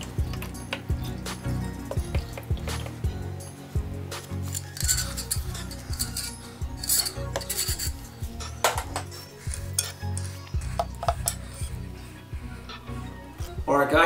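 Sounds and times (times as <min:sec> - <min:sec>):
background music: 0:00.0 - 0:14.0
metallic clinks and scraping: 0:04.2 - 0:11.9.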